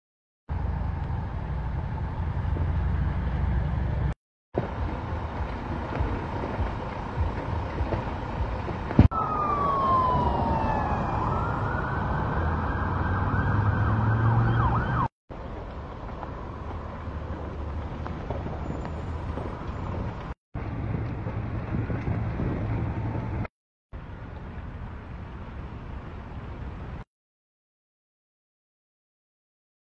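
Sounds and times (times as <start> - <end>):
traffic: 0.5 - 27.1
wind: 0.5 - 27.1
emergency vehicle siren wailing: 4.6 - 15.1.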